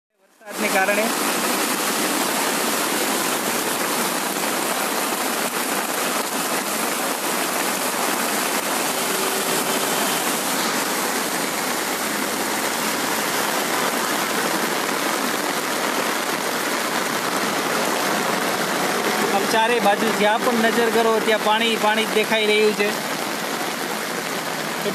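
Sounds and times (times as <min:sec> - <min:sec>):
heavy rain pouring on a street: 0:00.2 - 0:24.9.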